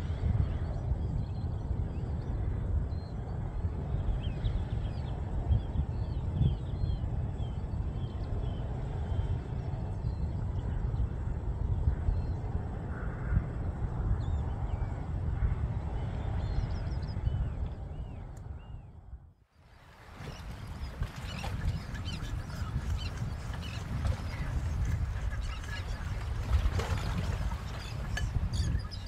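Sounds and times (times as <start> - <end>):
wind rumble on microphone: 0.0 - 29.0
small birds chirping: 20.2 - 29.0.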